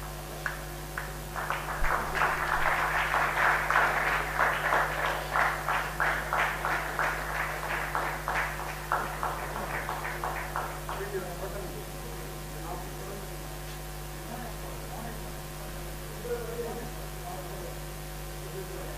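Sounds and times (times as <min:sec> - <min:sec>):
small crowd applauding: 0:00.4 - 0:11.7.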